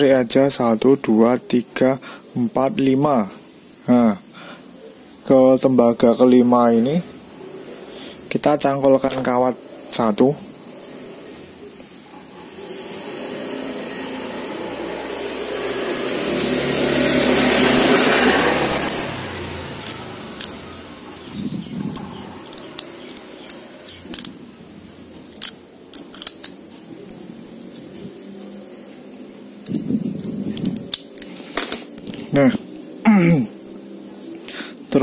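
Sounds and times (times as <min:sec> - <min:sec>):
passing vehicle rushing: 0:12.3 - 0:24.8
pliers clicking on wire: 0:17.7 - 0:19.1, 0:19.8 - 0:20.6, 0:21.8 - 0:24.4, 0:25.2 - 0:26.6.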